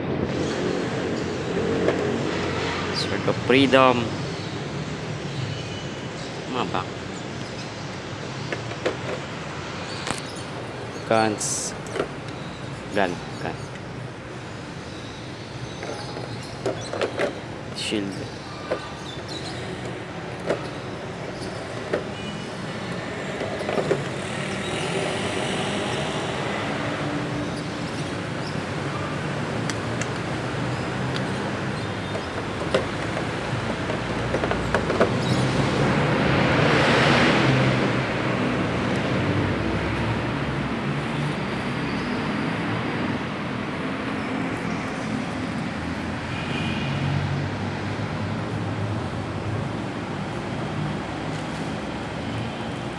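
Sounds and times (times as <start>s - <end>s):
road traffic noise: 0.0s - 52.9s
vehicle passing: 35.4s - 42.8s.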